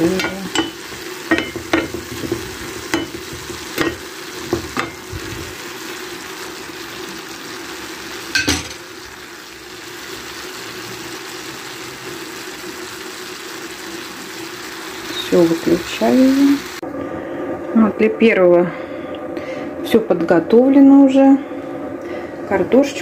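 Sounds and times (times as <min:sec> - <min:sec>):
metal spoon stirring against pan: 0:00.0 - 0:05.2
vegetables sizzling in a frying pan: 0:00.0 - 0:16.8.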